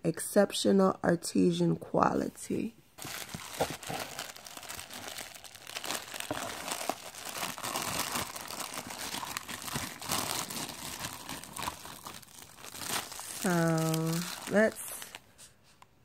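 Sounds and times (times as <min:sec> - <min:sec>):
paper shred rustling: 0:03.0 - 0:15.2
plastic bag crinkling: 0:03.0 - 0:15.3.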